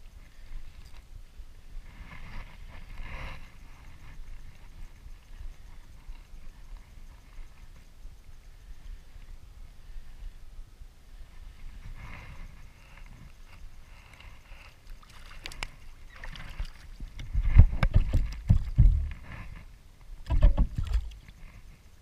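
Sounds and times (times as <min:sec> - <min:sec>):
water splashing and sloshing: 0:14.8 - 0:19.2, 0:20.2 - 0:21.4
wind buffeting microphone: 0:15.5 - 0:21.5.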